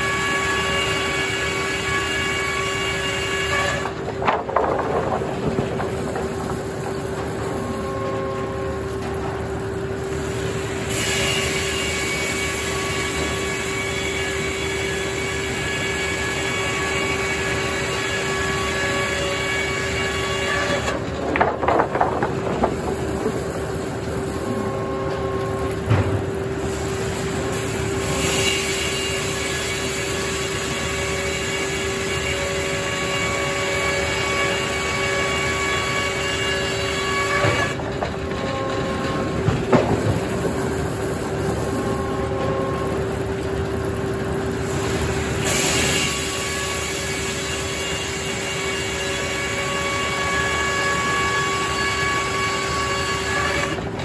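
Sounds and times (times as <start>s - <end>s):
saw blade humming and whining: 0.0s - 54.0s
clattering: 3.8s - 9.4s, 20.9s - 23.6s.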